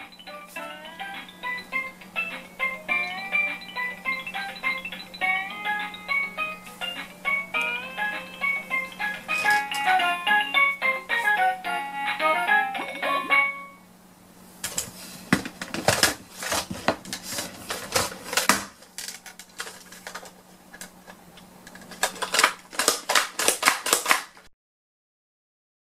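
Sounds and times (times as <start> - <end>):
plastic toy clicking and clattering: 15.6 - 24.5.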